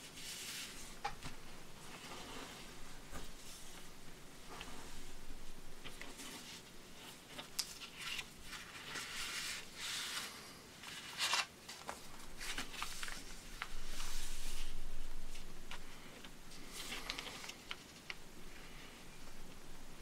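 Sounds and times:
paper rustling: 0:05.8 - 0:18.8
crisp paper crinkles: 0:05.9 - 0:14.8, 0:16.6 - 0:18.2.

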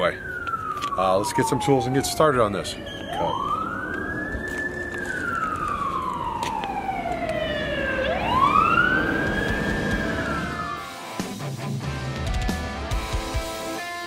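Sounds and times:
fire engine siren wailing: 0:00.0 - 0:11.1.

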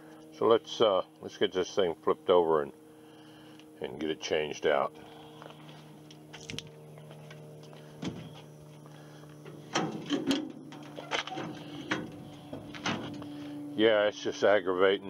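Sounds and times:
steady low hum: 0:00.0 - 0:15.0
metal cart knocks and clunks: 0:09.8 - 0:13.2.

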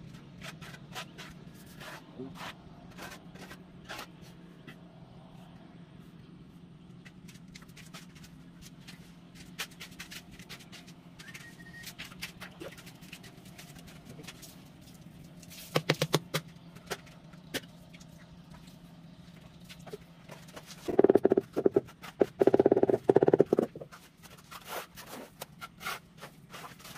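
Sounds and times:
steady low hum: 0:20.8 - 0:24.0
tile tapped into mortar: 0:20.9 - 0:23.8
tile clicks and scrapes: 0:20.9 - 0:24.0.

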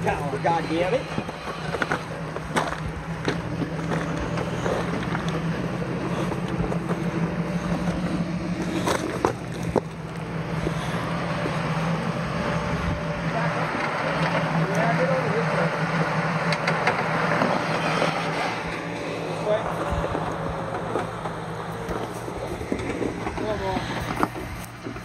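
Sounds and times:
tyres knocking and scraping rock: 0:00.0 - 0:11.6, 0:19.4 - 0:25.0
buggy engine running: 0:00.0 - 0:25.0.

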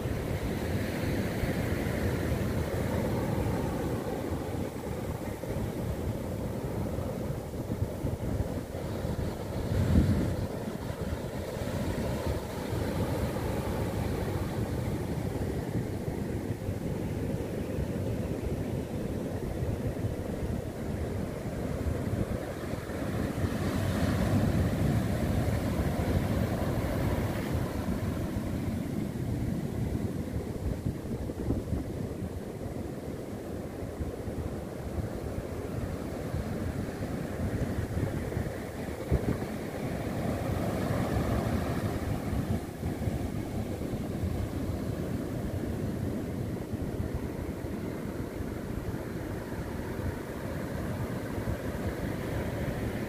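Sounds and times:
surf washing up a beach: 0:00.0 - 0:53.0
wind buffeting microphone: 0:00.0 - 0:53.0.

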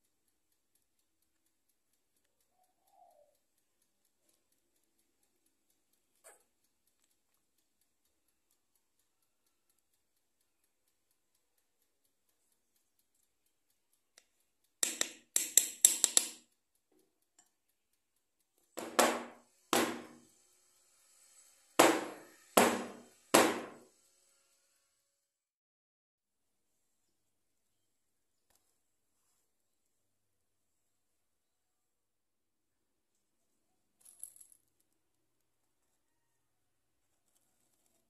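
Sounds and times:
metal loaf tin knocking on table: 0:18.8 - 0:20.2.

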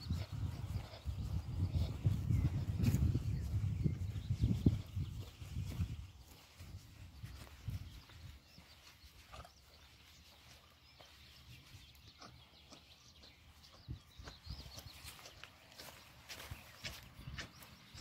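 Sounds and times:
soft low thumps: 0:00.0 - 0:08.4
birdsong chirps: 0:00.0 - 0:18.0.

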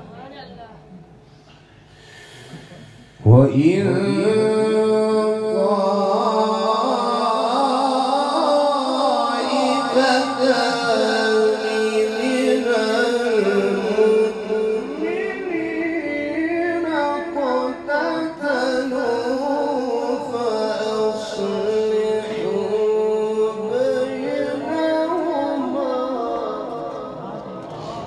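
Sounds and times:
man reciting over loudspeakers: 0:02.0 - 0:28.0.

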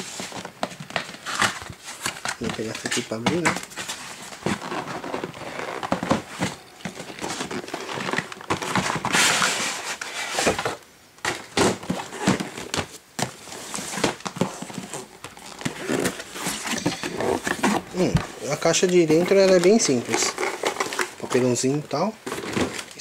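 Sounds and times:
cardboard box scraping slide: 0:07.3 - 0:10.8.

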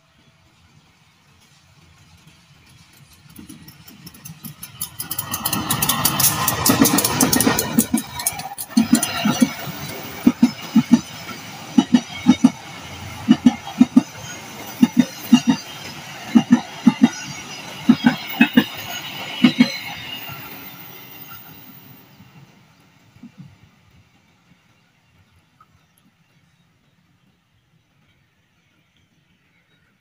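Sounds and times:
train running rumble: 0:00.1 - 0:29.8
train wheels clacking over rail joints: 0:01.4 - 0:22.0.

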